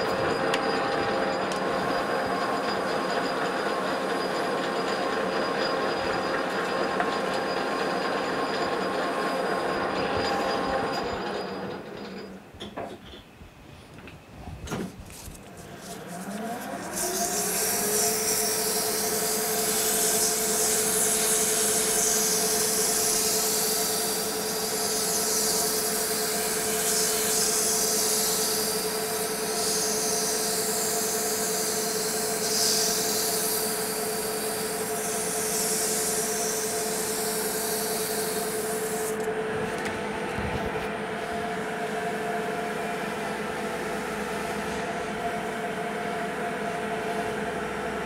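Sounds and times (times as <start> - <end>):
metal lathe whining: 0.0 - 13.0, 15.1 - 48.0
hand file rasping on metal: 15.6 - 39.1.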